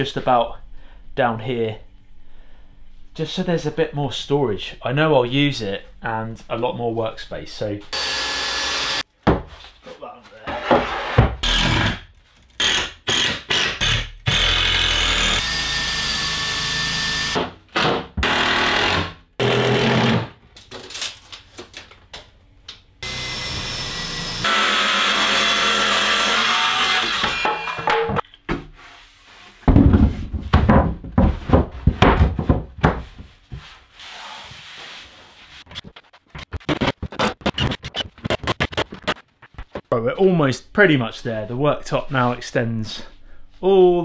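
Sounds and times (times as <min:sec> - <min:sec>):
knocks and thumps of wood: 0:09.2 - 0:09.6, 0:29.6 - 0:33.6.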